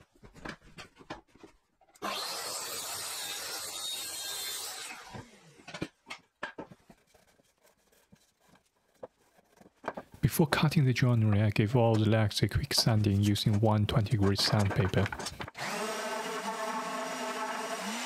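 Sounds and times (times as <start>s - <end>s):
track saw cutting wood: 2.0s - 5.8s, 15.6s - 18.0s
knocks and clicks handling saw: 14.2s - 15.6s.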